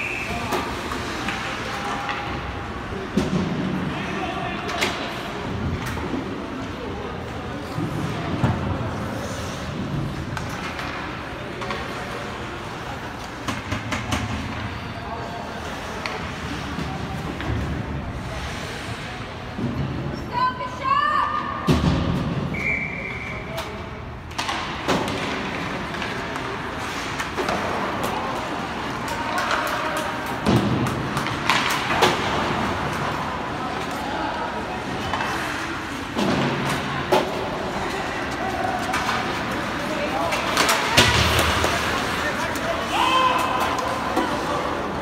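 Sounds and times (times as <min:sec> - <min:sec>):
skates and sticks on ice: 0:00.1 - 0:20.2, 0:24.3 - 0:45.0
sharp knocks of stick and puck: 0:29.3 - 0:32.4.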